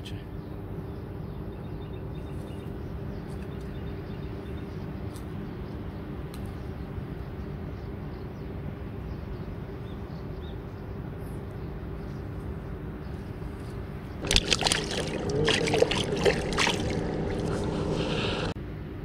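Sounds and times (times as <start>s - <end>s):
steady low drone: 10.3s - 18.6s
hands splashing in water: 14.2s - 18.5s.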